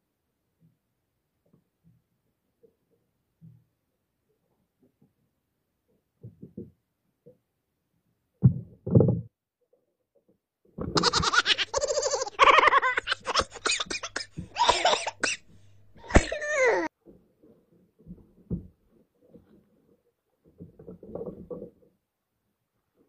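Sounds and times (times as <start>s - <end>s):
falling cry: 11.0s - 16.9s.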